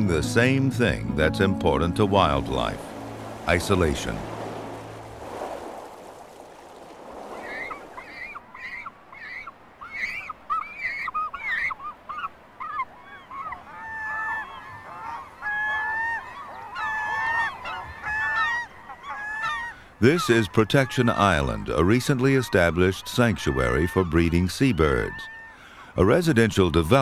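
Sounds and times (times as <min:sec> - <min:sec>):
gulls calling: 0:00.0 - 0:27.0
waves lapping on stony shore: 0:02.4 - 0:08.8.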